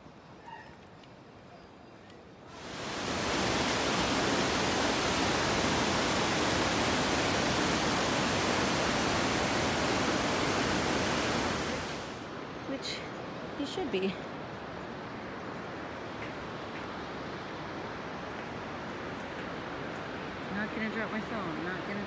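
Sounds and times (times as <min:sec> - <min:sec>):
river rushing over boulders: 0:02.5 - 0:12.4.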